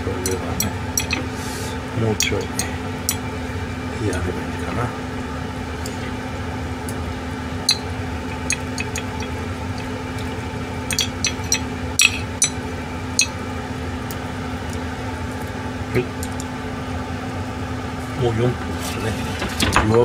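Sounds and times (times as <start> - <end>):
metal skewers clinking on wire rack: 0.0 - 1.3, 2.2 - 3.3, 10.9 - 12.6
low steady hum: 0.0 - 20.0
chopsticks clinking on ceramic plate: 0.2 - 1.4, 2.2 - 3.3, 7.7 - 12.6, 13.2 - 13.4.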